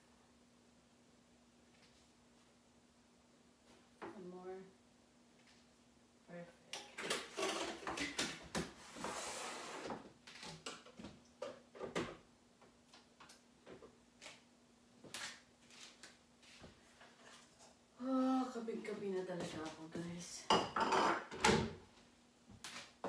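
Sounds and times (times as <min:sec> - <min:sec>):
faint steady hum: 0:00.0 - 0:23.0
kitchen items clattering: 0:06.8 - 0:08.8, 0:20.5 - 0:21.8.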